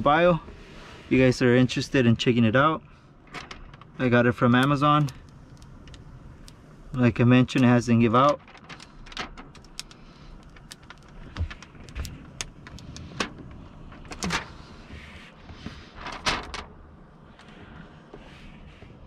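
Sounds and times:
film peeling clicks and crackles: 3.3 - 6.6, 7.5 - 14.5.

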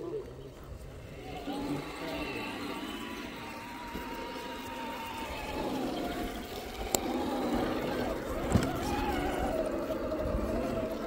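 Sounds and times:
rc car motor whining: 0.0 - 11.0.

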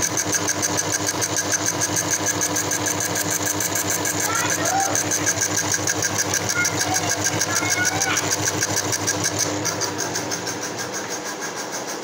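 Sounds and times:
lathe motor with grinding wheel: 0.0 - 12.0.

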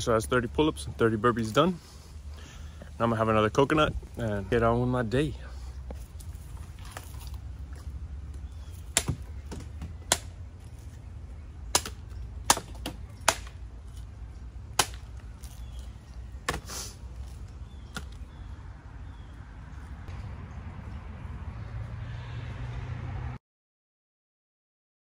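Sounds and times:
blade chopping coconut: 8.8 - 10.3, 11.7 - 14.0, 14.7 - 15.8.

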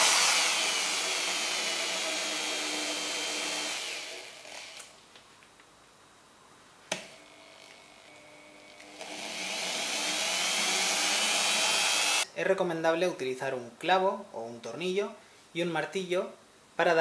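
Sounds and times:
electric drill drilling wood: 0.0 - 4.9, 7.2 - 12.2.

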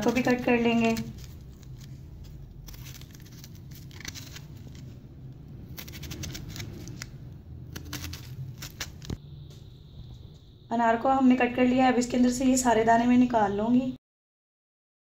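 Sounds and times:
knife cutting pomegranate rind: 0.0 - 9.2.

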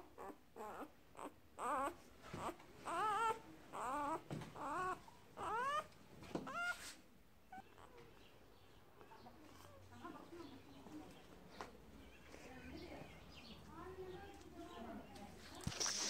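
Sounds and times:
puppy squealing: 0.2 - 5.9, 6.5 - 6.8, 7.5 - 8.0.

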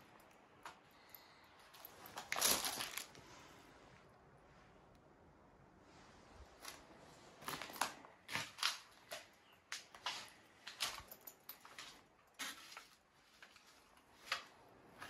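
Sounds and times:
footsteps crunching over debris: 1.8 - 3.2, 6.6 - 15.0.

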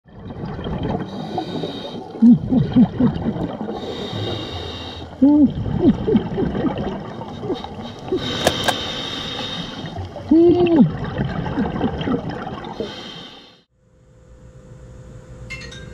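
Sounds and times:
bubbles gurgling: 0.1 - 4.8, 5.4 - 8.7, 9.8 - 12.8
muffled person laughing underwater: 2.2 - 3.3, 5.2 - 8.7, 10.2 - 12.0.

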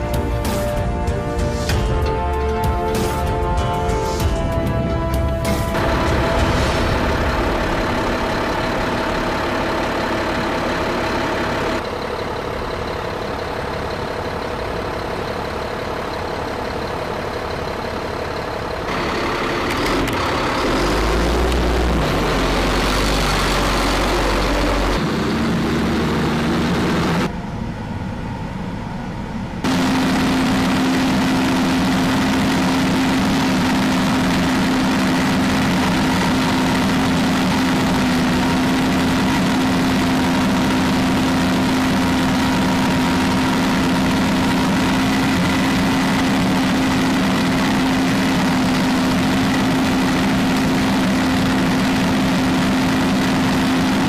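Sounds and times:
truck diesel engines idling: 0.0 - 54.0.

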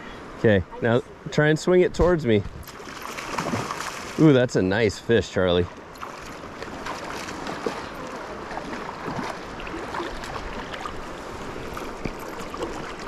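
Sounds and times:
river water lapping: 2.6 - 4.5, 5.3 - 13.0.

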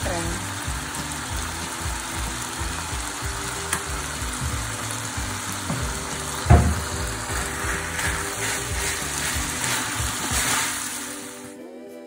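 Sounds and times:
food sizzling in a frying pan: 0.0 - 11.6
loud knock: 5.7 - 7.1.

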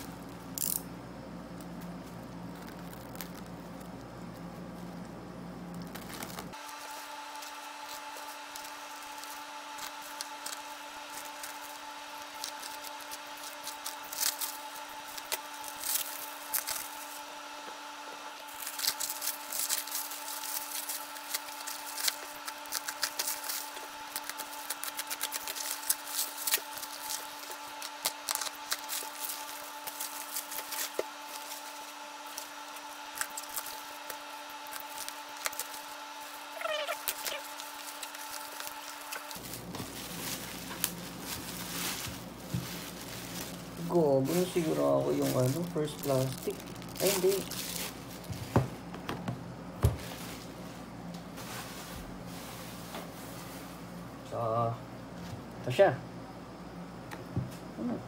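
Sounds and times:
faint steady hum: 0.0 - 58.0
plastic bag crinkling and tearing: 1.6 - 5.0, 5.7 - 17.3, 18.4 - 48.5.

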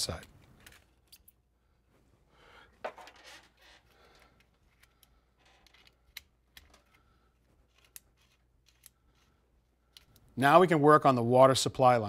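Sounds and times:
faint clicks and taps of tool: 9.9 - 10.3.

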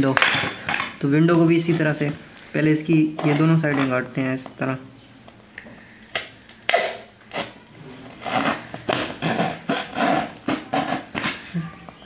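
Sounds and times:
knife cutting cardboard: 3.2 - 4.0, 6.7 - 11.5.

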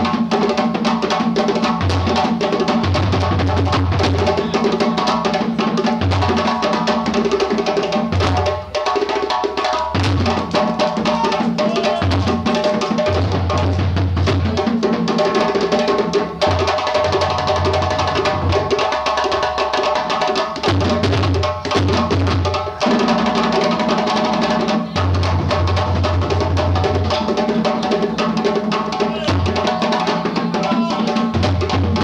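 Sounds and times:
djembe ensemble drumming: 0.0 - 32.0.

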